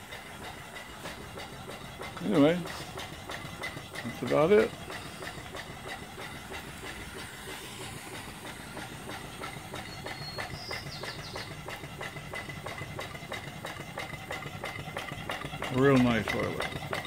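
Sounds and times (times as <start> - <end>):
steam hiss: 0.0 - 15.8
steam engine chuffing: 0.0 - 17.0.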